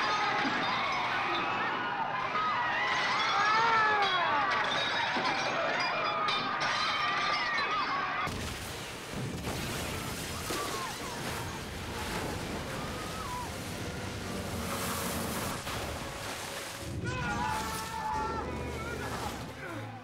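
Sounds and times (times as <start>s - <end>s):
people screaming: 0.0s - 8.3s, 9.8s - 16.0s, 16.8s - 20.0s
rushing roar of flooding water: 8.3s - 20.0s.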